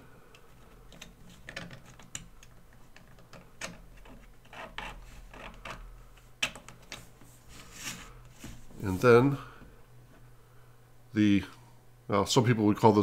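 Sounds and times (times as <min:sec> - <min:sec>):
plastic parts clicking: 0:00.3 - 0:07.1.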